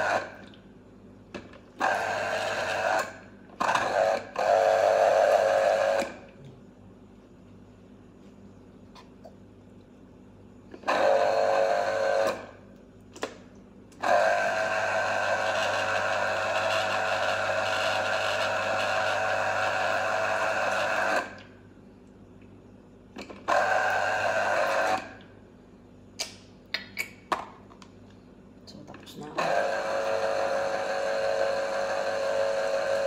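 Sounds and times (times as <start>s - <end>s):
citrus juicer motor humming: 0.0s - 0.7s, 1.4s - 6.5s, 10.6s - 21.6s, 23.1s - 25.5s, 29.4s - 33.0s.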